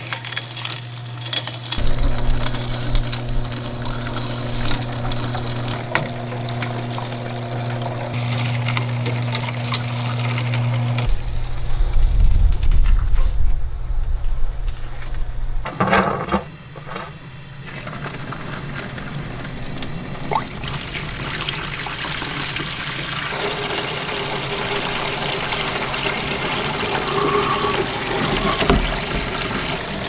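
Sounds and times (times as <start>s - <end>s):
juice pouring into plastic tub: 0.0s - 11.1s, 17.6s - 30.0s.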